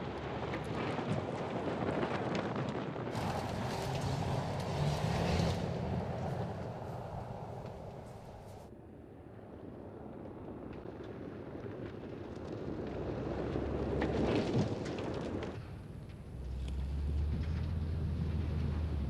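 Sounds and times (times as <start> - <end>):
tyres crunching on gravel: 3.1 - 8.6
steady low rumble: 3.1 - 8.7.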